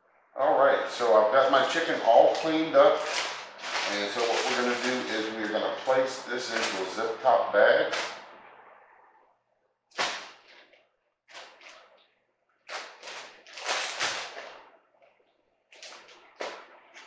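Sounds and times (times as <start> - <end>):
plastic bag crinkling: 1.4 - 7.2, 7.8 - 8.2, 10.0 - 17.0.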